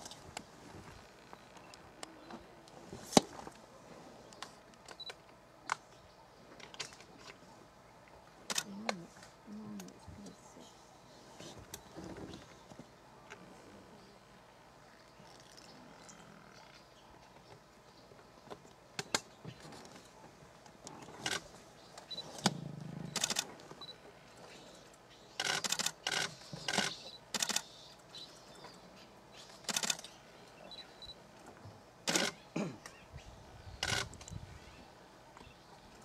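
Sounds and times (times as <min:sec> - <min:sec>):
camera shutters clicking: 0:23.1 - 0:23.5, 0:25.4 - 0:27.7, 0:29.6 - 0:30.1, 0:32.1 - 0:32.4, 0:33.8 - 0:34.1.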